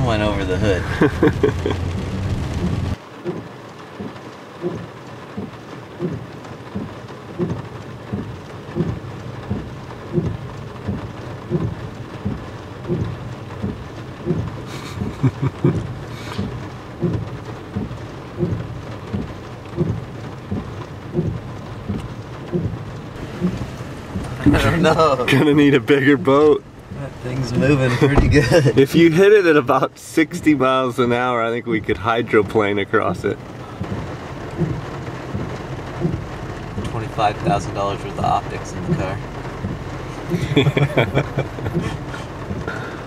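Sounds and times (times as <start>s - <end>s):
heavy rain falling: 0.0s - 43.0s
low thump: 28.1s - 28.6s.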